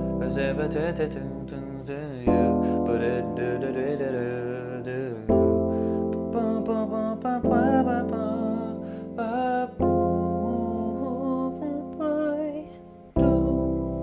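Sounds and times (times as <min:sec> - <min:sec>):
keyboard chords: 0:00.0 - 0:14.0
person singing wavering melody: 0:00.0 - 0:14.0.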